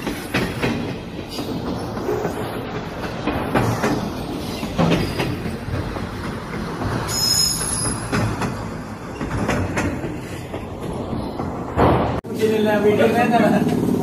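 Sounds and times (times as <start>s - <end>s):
train rumbling on track: 0.0s - 14.0s
wheels clicking over rail joints: 0.0s - 14.0s
train wheel squeal: 4.4s - 5.5s, 7.0s - 8.4s.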